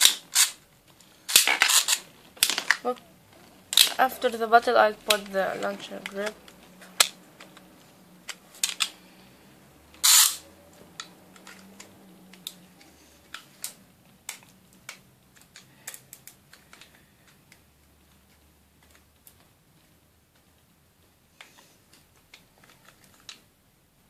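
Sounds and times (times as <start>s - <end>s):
spinning tops clicking and clacking: 10.0s - 10.5s.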